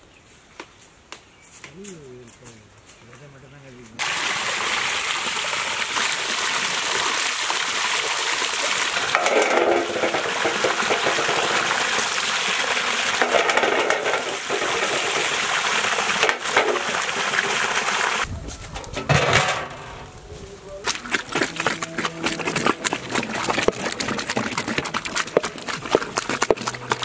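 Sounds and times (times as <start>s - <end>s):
water gushing from a pipe: 4.0s - 18.3s, 20.8s - 27.0s.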